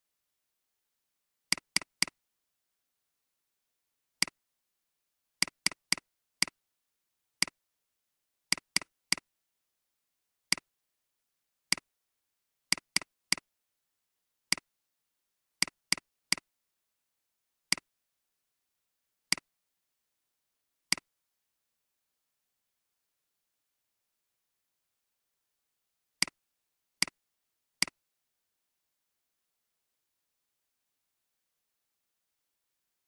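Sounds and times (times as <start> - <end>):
computer mouse clicks: 1.5 - 2.2, 8.5 - 9.3.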